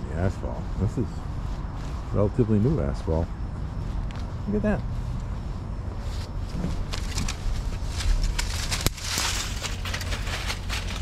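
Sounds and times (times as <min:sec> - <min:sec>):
dry leaves crackling and rustling: 0:00.0 - 0:11.0
low steady rumble: 0:00.0 - 0:11.0
stems snapping: 0:06.9 - 0:11.0.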